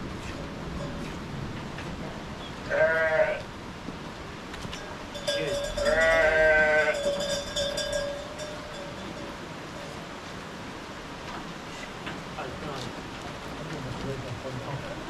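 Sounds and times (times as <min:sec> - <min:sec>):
goat bleating: 0:02.6 - 0:03.5, 0:05.8 - 0:07.0.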